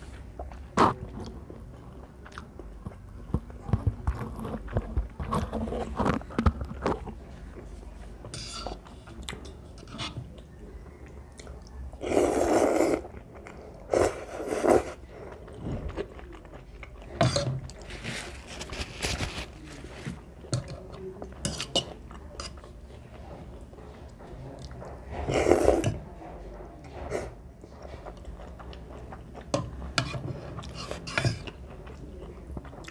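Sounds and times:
slurping noodles: 0:12.0 - 0:13.2, 0:13.8 - 0:15.6.

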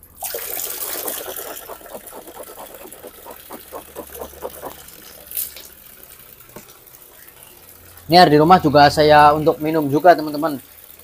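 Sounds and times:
water gurgling: 0:00.1 - 0:06.4
water running and splashing: 0:00.2 - 0:06.5.

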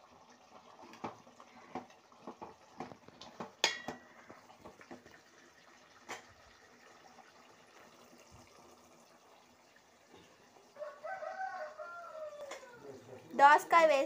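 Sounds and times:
spoon stirring in metal pot: 0:00.9 - 0:05.0.

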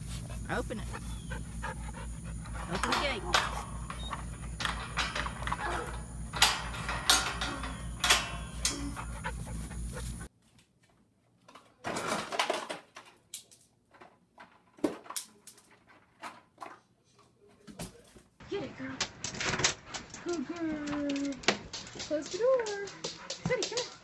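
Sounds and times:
dog panting hard: 0:00.0 - 0:03.7, 0:08.7 - 0:10.3, 0:21.9 - 0:24.0.

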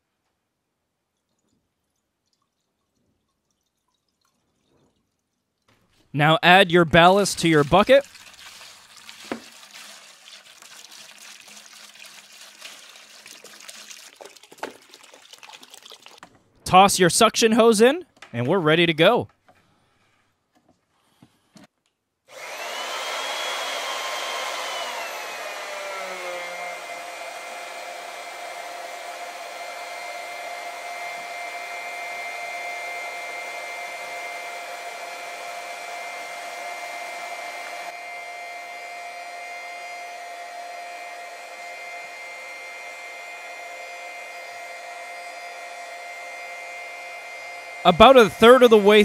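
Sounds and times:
electric water pump whining: 0:07.0 - 0:16.2, 0:22.3 - 0:49.0.

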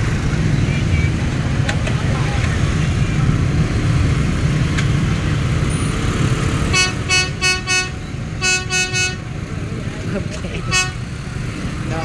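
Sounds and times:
engines rumbling: 0:00.0 - 0:12.0
motorbike horn beeps: 0:06.7 - 0:09.2.

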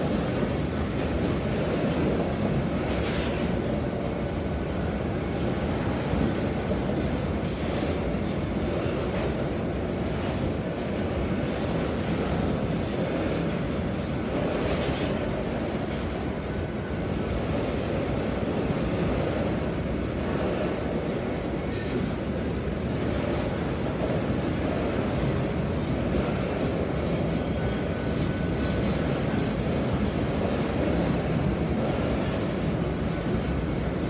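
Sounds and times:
steel wheels rumbling on rail: 0:00.0 - 0:34.0
high-pitched wheel squeals: 0:24.9 - 0:26.2.

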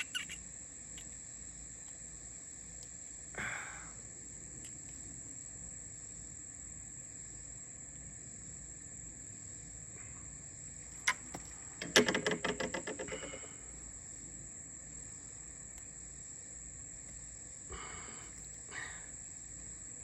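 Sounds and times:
insects chorus: 0:00.0 - 0:20.0
rapid rattling clicks: 0:11.8 - 0:13.4.

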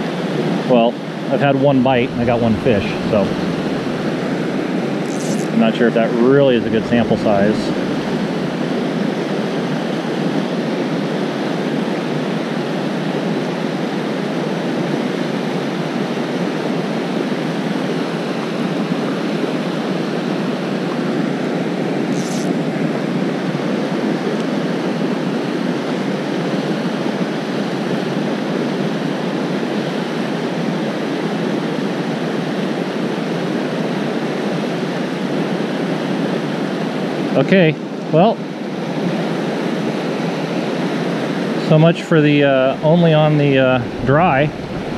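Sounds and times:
river water rushing over rocks: 0:02.0 - 0:05.5, 0:42.4 - 0:44.9
high-pitched hiss: 0:05.0 - 0:08.2, 0:22.1 - 0:22.6.

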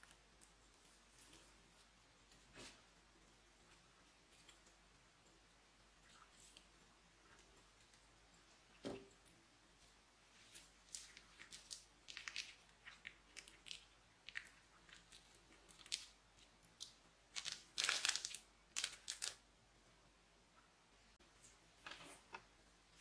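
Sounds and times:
plastic bag crinkling: 0:10.5 - 0:16.2, 0:16.8 - 0:19.4.

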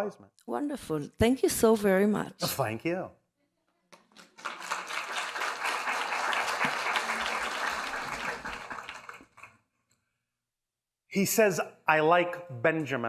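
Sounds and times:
audience applauding: 0:04.0 - 0:09.6.

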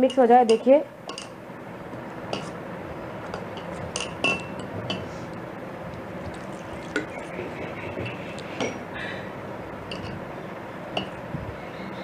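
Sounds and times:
water pouring from plastic bottle: 0:06.2 - 0:07.8.

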